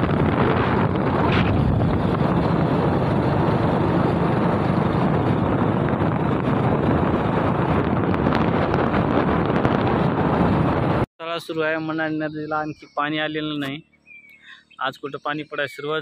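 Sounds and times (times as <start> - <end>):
vehicle running noise: 0.0 - 11.0
wind buffeting microphone: 0.0 - 13.0.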